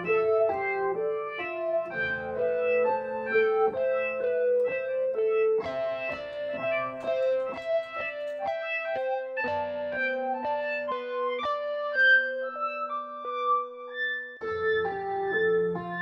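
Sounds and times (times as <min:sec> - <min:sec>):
electronic keyboard melody: 0:00.0 - 0:16.0.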